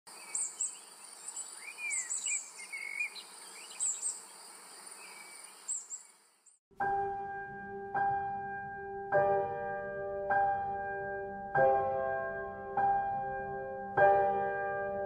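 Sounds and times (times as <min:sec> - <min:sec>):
insects droning: 0:00.1 - 0:06.6.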